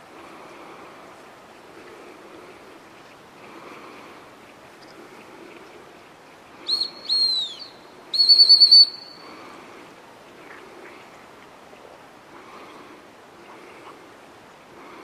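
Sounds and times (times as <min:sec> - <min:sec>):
training whistle blasts: 0:06.7 - 0:09.2.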